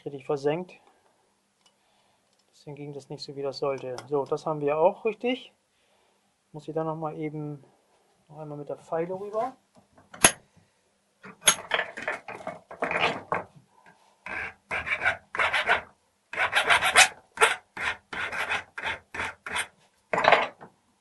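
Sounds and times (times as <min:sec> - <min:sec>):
hand file rasping over metal: 0:14.2 - 0:19.7.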